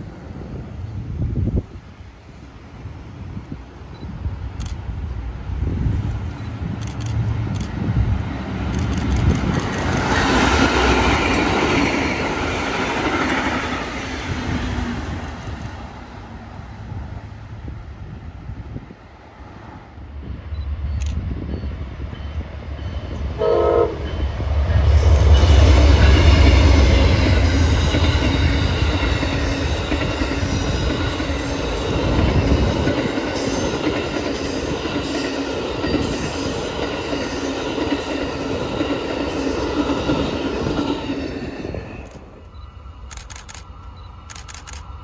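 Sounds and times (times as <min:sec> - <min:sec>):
locomotive rumbling past: 0:05.1 - 0:42.6
train horn: 0:23.3 - 0:28.8
train wheel clatter: 0:24.1 - 0:42.2.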